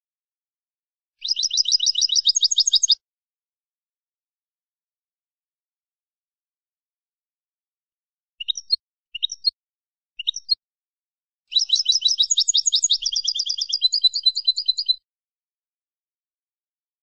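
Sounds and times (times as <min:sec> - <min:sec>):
goldfinch twittering trill: 0:01.2 - 0:03.0, 0:11.5 - 0:15.0
goldfinch call notes: 0:11.5 - 0:15.0.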